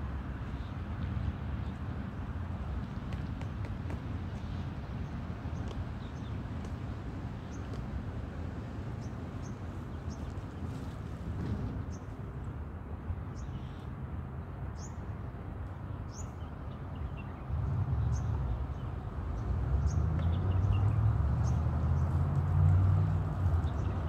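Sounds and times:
vehicle engine rumble: 0:17.4 - 0:24.0.

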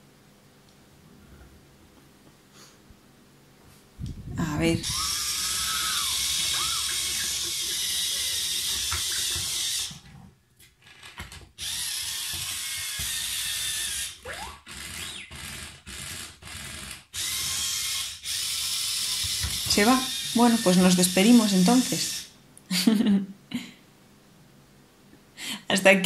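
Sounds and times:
toy motors and gears whirring: 0:04.8 - 0:22.4.

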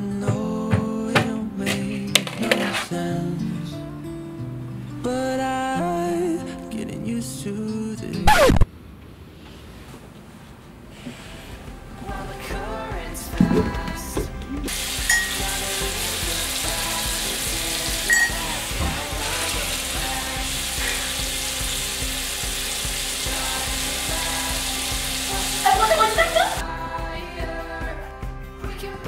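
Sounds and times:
soft background music: 0:11.3 - 0:29.0
water running: 0:13.3 - 0:26.6.

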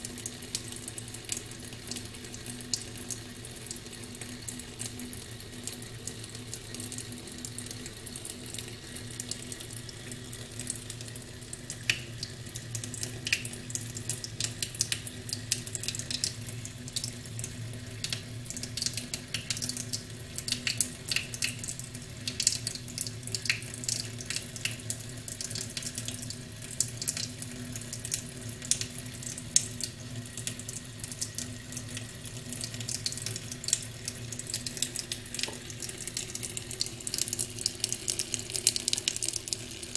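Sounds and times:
tap running into steel sink: 0:34.6 - 0:35.7.

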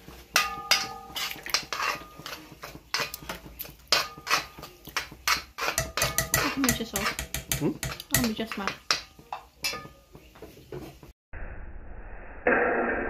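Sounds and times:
metal spoon scraping a wok: 0:00.0 - 0:11.1.

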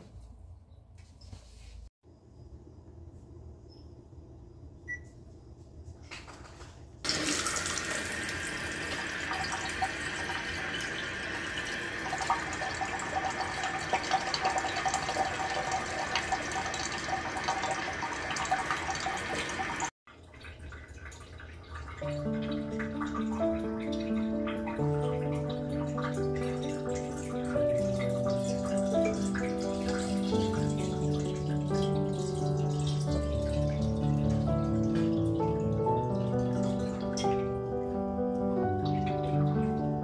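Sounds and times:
water running into a glass jar: 0:07.1 - 0:37.5
music: 0:22.0 - 0:40.0.

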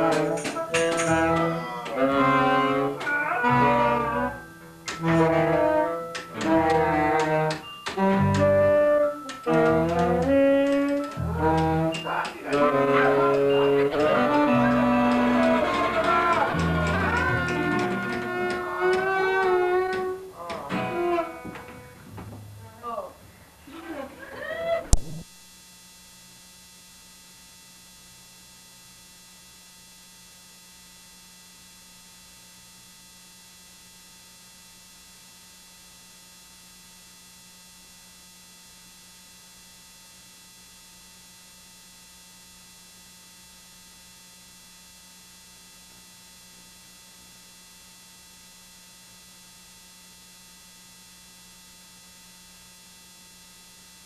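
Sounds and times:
tape playback hiss and hum: 0:00.0 - 0:54.0.

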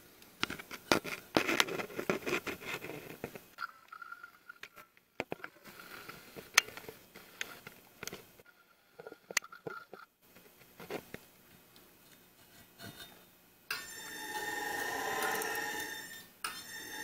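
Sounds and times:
faint whine: 0:10.3 - 0:17.0
camera scraping inside metal pipe: 0:13.8 - 0:17.0.

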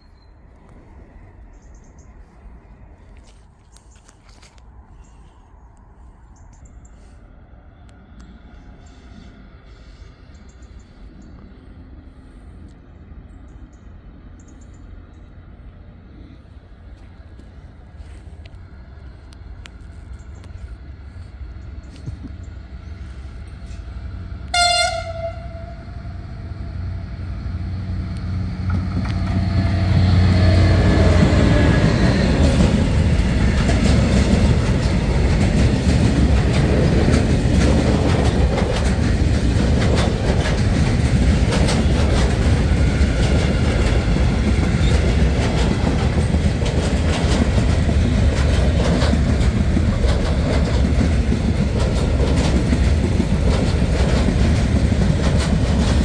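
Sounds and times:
diesel locomotive engine: 0:00.0 - 0:56.0
train horn blast: 0:24.4 - 0:26.2
train wheels clattering over rail joints: 0:28.6 - 0:56.0.

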